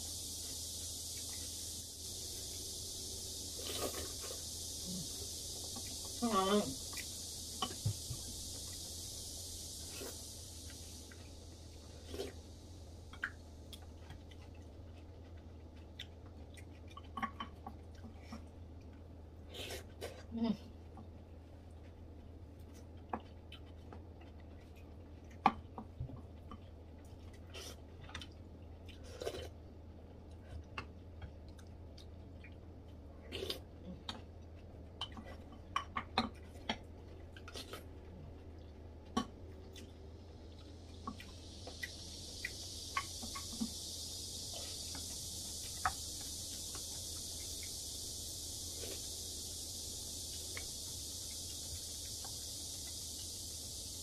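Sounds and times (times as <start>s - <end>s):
steady hiss: 0.0s - 23.3s, 24.5s - 54.0s
low steady hum: 0.0s - 54.0s
chewing: 9.8s - 49.2s.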